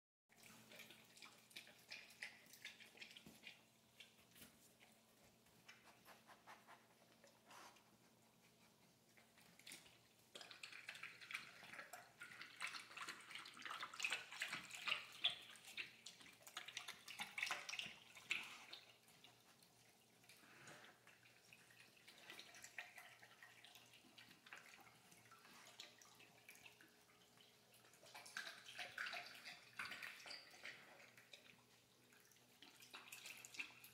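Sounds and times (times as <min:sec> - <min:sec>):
dog lapping water: 0:00.3 - 0:06.2, 0:06.9 - 0:33.9.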